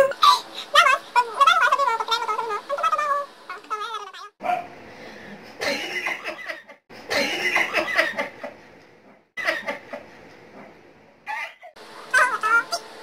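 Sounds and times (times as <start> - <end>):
people laughing: 6.0 - 8.6, 9.4 - 10.1.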